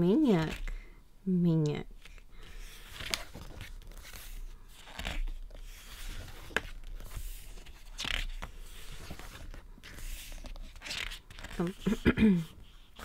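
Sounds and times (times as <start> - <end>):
book pages turning: 0.3 - 0.8, 2.0 - 13.0.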